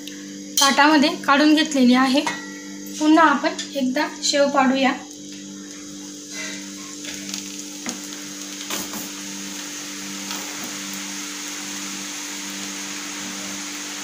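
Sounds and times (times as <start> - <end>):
oil sizzling: 0.0 - 14.0.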